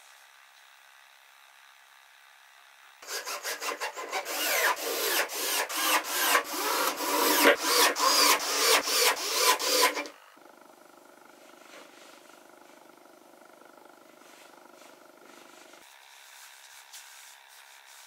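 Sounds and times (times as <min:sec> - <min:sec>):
rhythmic rubbing strokes on wood: 0:03.0 - 0:10.1, 0:14.0 - 0:18.0.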